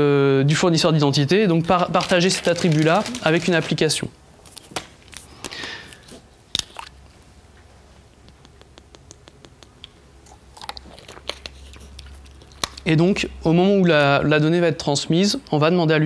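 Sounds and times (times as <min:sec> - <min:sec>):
small mouth clicks: 0:08.1 - 0:12.9.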